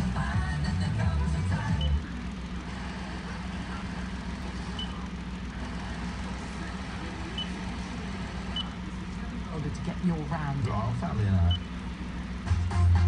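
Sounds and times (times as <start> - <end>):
radio hum with hiss: 1.5 - 12.5
short faint beeps: 4.8 - 5.0.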